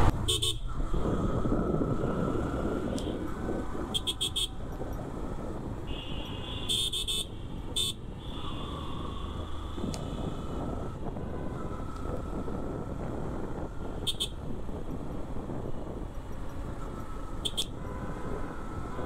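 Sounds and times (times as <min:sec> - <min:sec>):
wind and road noise: 0:00.0 - 0:19.0.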